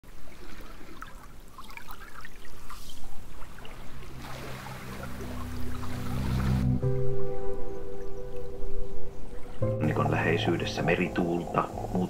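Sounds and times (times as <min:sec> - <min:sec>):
small waves lapping: 0:00.0 - 0:12.0
low music drone: 0:03.9 - 0:12.0.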